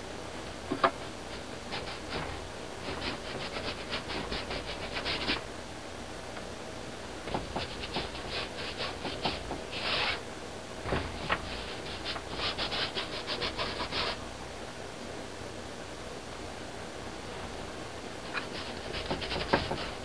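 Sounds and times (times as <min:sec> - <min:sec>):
paintbrush scrubbing on canvas: 0:01.3 - 0:02.2, 0:02.8 - 0:05.4, 0:07.5 - 0:10.2, 0:11.4 - 0:14.2, 0:18.3 - 0:20.0.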